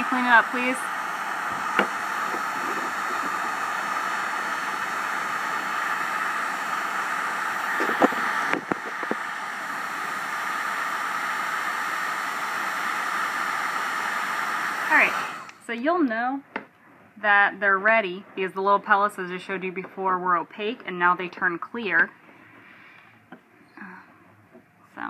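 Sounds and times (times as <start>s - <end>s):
heat gun blowing: 0.0s - 15.9s.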